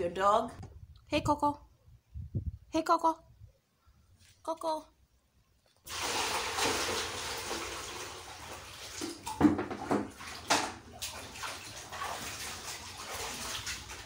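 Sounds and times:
water pouring into plastic basin: 5.8s - 14.0s
hands splashing water in basin: 5.9s - 14.0s.

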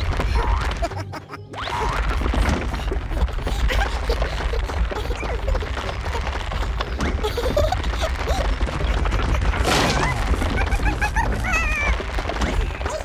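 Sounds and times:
noisy crash: 8.0s - 13.0s.

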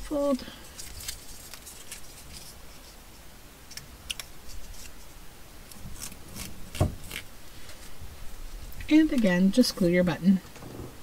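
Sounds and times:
paper rustling: 0.6s - 3.0s.

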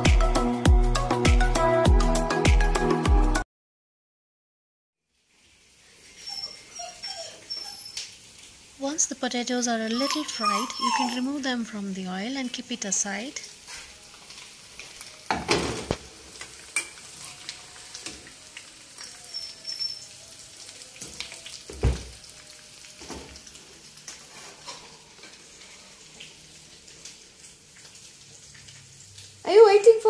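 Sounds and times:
potatoes sizzling in oil: 5.0s - 30.0s
spatula clinking and scraping pan: 16.4s - 17.4s, 24.1s - 25.4s.

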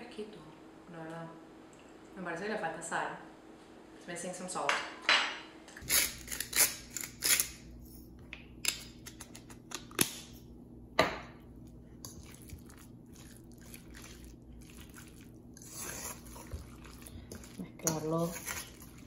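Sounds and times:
spoon scraping metal bowl: 15.6s - 19.0s.

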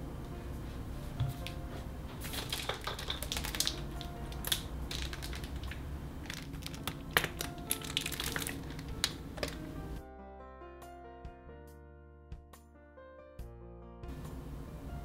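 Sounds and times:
squeeze bottle crackling: 2.2s - 9.9s.

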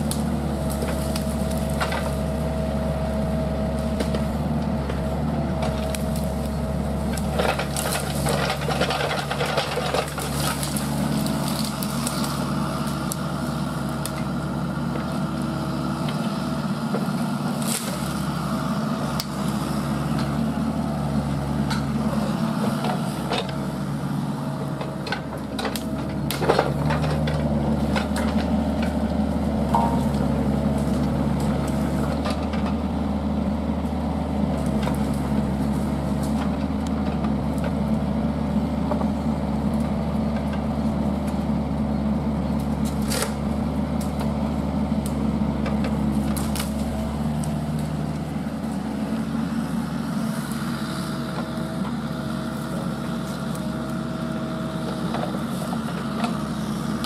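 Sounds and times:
wood cracking and snapping: 0.0s - 2.5s, 5.5s - 14.4s, 17.4s - 22.0s, 24.7s - 32.8s, 42.5s - 44.4s, 45.0s - 48.9s
diesel engine running: 0.0s - 57.0s.

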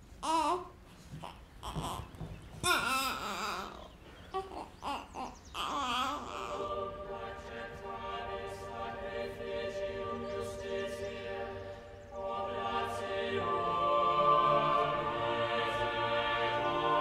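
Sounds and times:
choir holding sustained notes: 5.6s - 17.0s.

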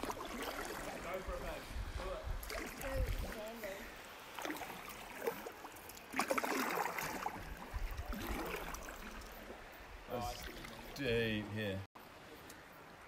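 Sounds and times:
kayak paddle splashing water: 0.0s - 1.8s, 2.4s - 11.0s.

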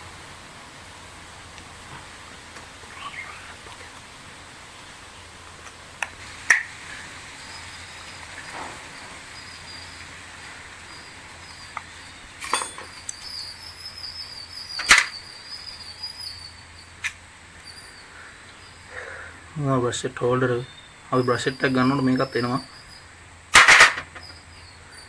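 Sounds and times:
high chirping: 7.3s - 19.4s, 20.1s - 23.2s, 24.1s - 25.0s.

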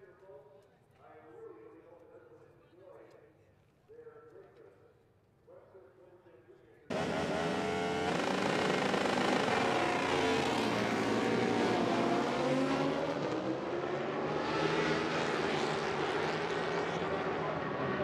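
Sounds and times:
motorcycles revving and accelerating: 6.9s - 18.0s.

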